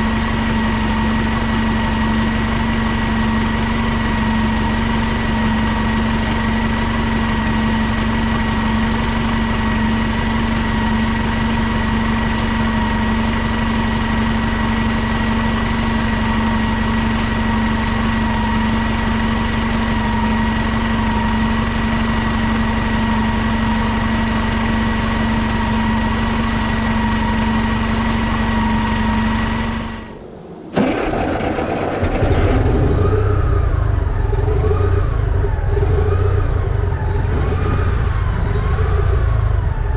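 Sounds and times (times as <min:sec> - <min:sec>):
bus engine heard on board: 0:00.0 - 0:39.9
bus engine idling with whine: 0:00.0 - 0:39.9.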